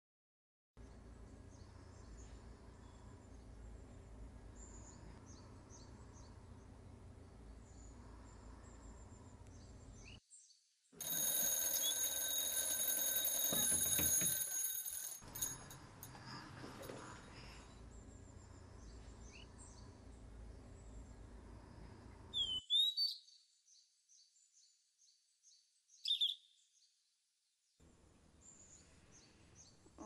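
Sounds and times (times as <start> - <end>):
alarm clock ringing: 11.0 - 16.2.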